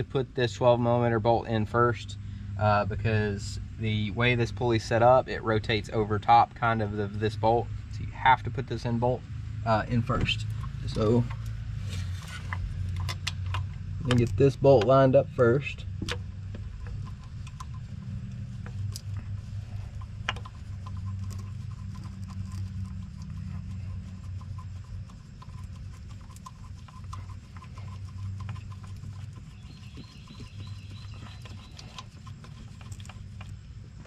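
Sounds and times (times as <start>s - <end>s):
low background hum: 0.0s - 34.0s.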